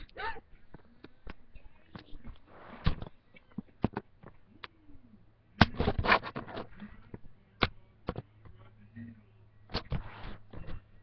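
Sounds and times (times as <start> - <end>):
microphone handling clicks and knocks: 0.7 - 4.4, 5.6 - 8.6
scrapes and rustling: 1.8 - 4.4, 9.7 - 10.9.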